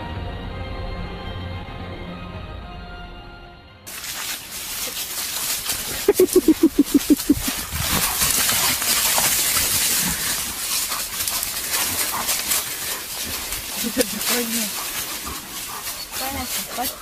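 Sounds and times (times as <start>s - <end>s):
rustling scuffling noise: 3.9s - 17.0s
animal short calls: 5.9s - 7.7s.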